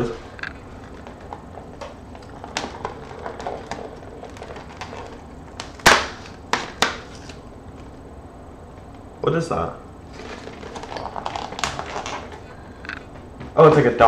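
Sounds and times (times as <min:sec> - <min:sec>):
cardboard crackling and scratching: 0:00.0 - 0:07.4, 0:10.1 - 0:12.4
cardboard cracking and snapping: 0:01.0 - 0:07.4, 0:10.2 - 0:12.4.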